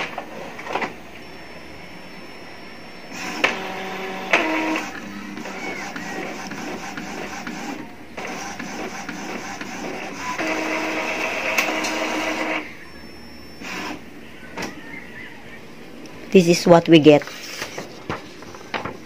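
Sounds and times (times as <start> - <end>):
printer steady whir: 0.0 - 16.0
printer carriage and paper feed: 3.1 - 12.7
printer motor burst: 3.1 - 14.1.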